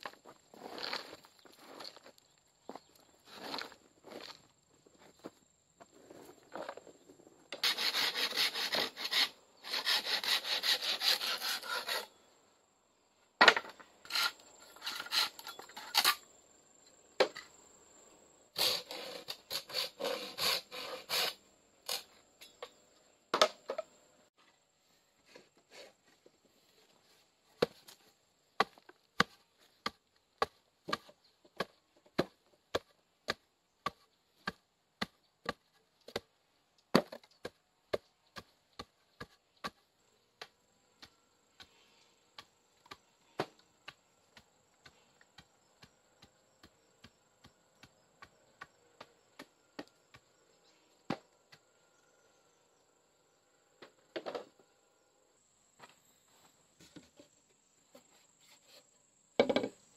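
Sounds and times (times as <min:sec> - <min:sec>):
hand saw cutting wood: 0:07.6 - 0:12.1, 0:14.0 - 0:16.2, 0:18.6 - 0:22.1.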